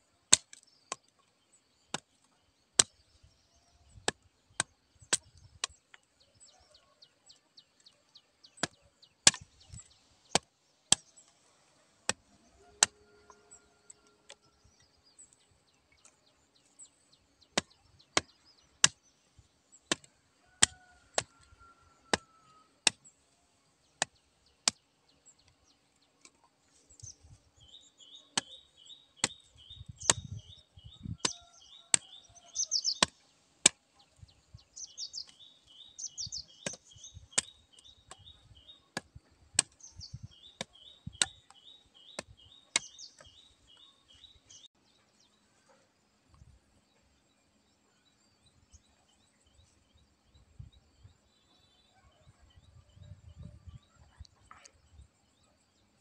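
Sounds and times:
birds chirping: 0.6 - 56.0
blade chopping stems: 8.6 - 13.0, 19.9 - 21.5, 29.2 - 30.4, 36.3 - 38.3, 38.9 - 43.4.

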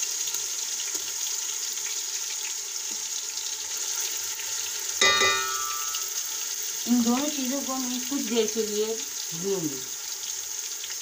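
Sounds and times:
paste sizzling in hot oil: 0.0 - 11.0
sharp metal clink: 5.0 - 6.1.

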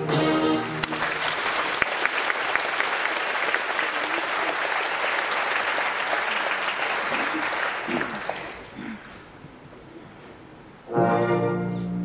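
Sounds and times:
audience applauding: 0.1 - 9.4.

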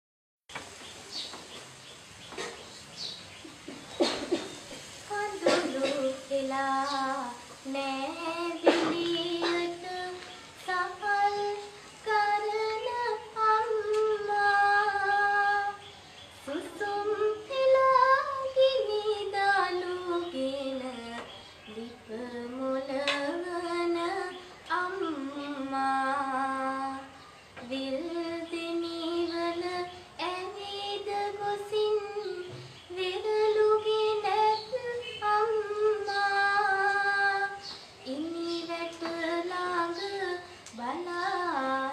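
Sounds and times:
girl singing solo: 5.0 - 41.9.

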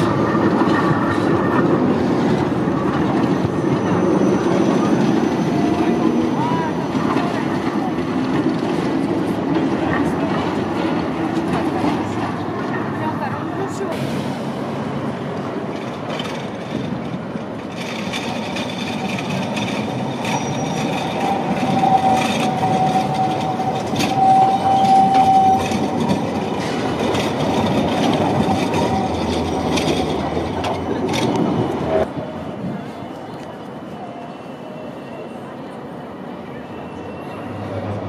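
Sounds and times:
tram wheels running noise: 0.0 - 38.0
thin wheel squeal: 20.2 - 26.0.

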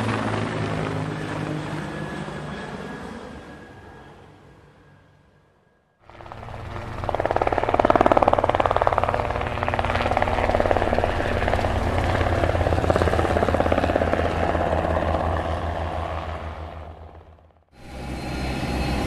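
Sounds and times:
helicopter rotor chop: 0.0 - 3.8, 6.0 - 19.0
helicopter engine running: 0.0 - 5.0, 6.0 - 19.0.

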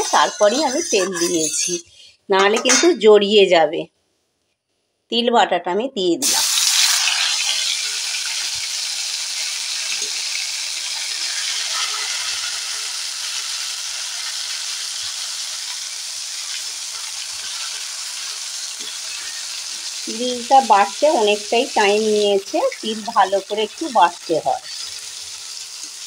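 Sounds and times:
paste sizzling in hot oil: 0.0 - 1.8, 6.2 - 26.0
metal spatula scraping: 0.0 - 3.1, 11.1 - 13.0, 16.4 - 19.8.

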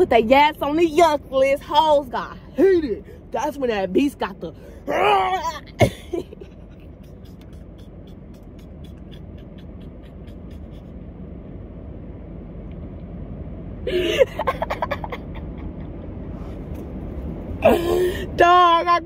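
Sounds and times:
steady low rumble: 0.0 - 19.0
woman laughing: 5.4 - 10.9, 13.9 - 16.0, 17.6 - 18.3.

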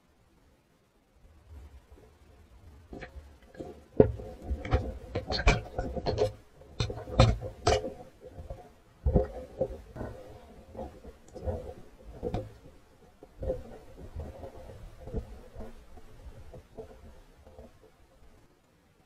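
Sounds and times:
low rumble of water: 0.0 - 19.0
muffled underwater knocks: 2.9 - 17.9.

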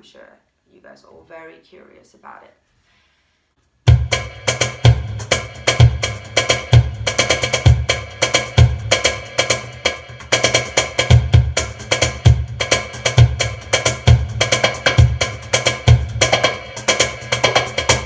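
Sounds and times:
electronic darbuka drum groove: 3.9 - 18.0.

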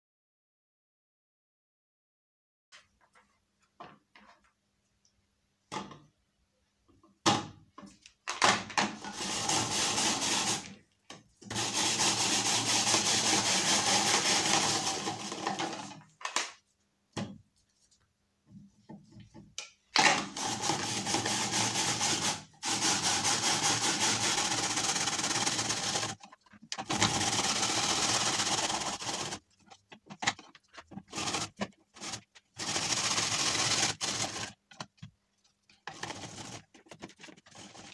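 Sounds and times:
rotary grater shredding carrot: 9.1 - 10.8, 11.5 - 15.9, 20.3 - 29.5, 30.9 - 34.6, 35.9 - 37.9.

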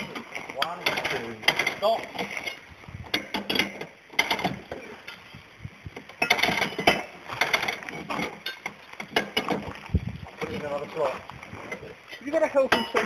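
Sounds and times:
windlass ratchet clicking: 0.0 - 9.8.

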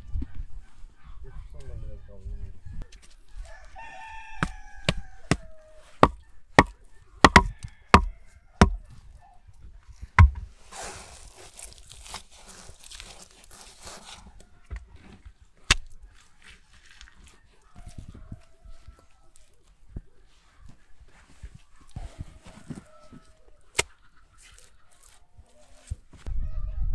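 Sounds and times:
wooden knocks on logs: 6.0 - 8.8, 10.2 - 10.5
wet mud rustling and scraping: 9.8 - 26.3.

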